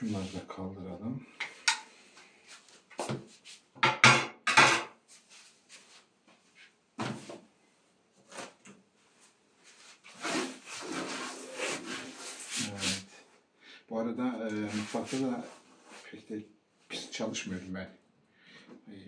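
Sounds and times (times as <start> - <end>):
objects knocking and clattering: 3.8 - 5.0
cloth wiping a table: 9.6 - 13.1, 14.6 - 16.2.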